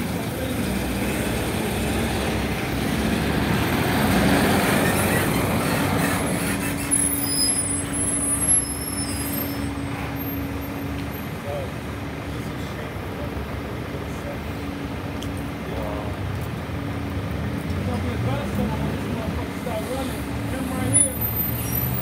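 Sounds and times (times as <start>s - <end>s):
truck pulling away: 0.0s - 11.3s
engines idling in traffic: 0.0s - 22.0s
high-pitched squeals: 4.5s - 10.6s.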